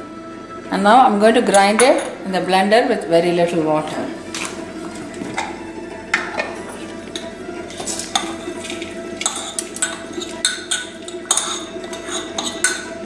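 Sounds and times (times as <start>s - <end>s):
bowl clinking against jar: 7.2s - 13.0s.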